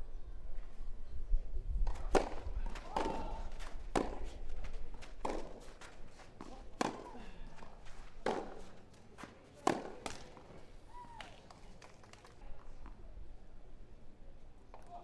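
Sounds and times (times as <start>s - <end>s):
rackets hitting tennis ball: 1.8s - 12.3s
tennis ball bouncing: 1.9s - 10.6s.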